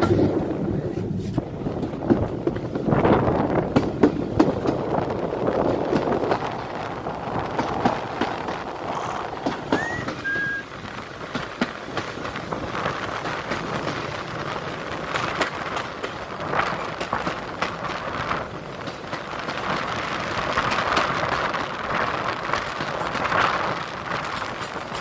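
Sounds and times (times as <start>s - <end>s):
train wheels clattering over rails: 0.0s - 25.0s
wind rushing past microphone: 0.0s - 25.0s
short rising whistle tone: 9.0s - 10.7s.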